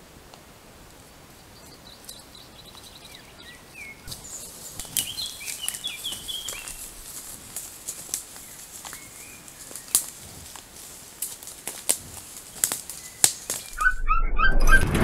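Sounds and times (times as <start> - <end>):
clicks and rustles: 4.1 - 13.9.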